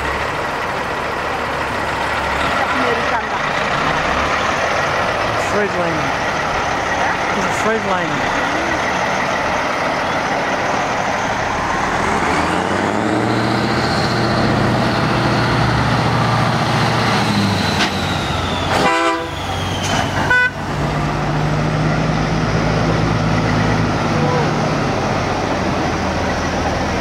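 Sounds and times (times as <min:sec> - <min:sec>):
diesel trucks driving past: 0:00.0 - 0:27.0
truck horn blasts: 0:18.7 - 0:19.4, 0:20.2 - 0:20.7.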